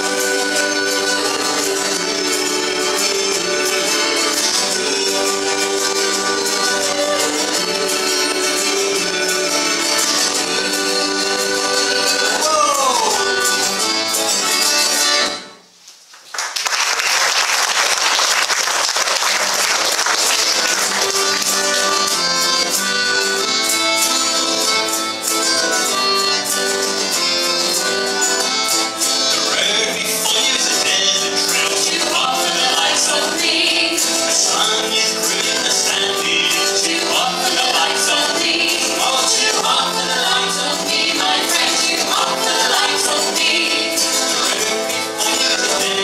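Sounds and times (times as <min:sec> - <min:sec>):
person singing: 0:00.0 - 0:13.9, 0:29.3 - 0:46.0
piano accordion: 0:00.0 - 0:15.6, 0:20.3 - 0:46.0
strummed acoustic guitar: 0:00.0 - 0:15.6, 0:20.2 - 0:46.0.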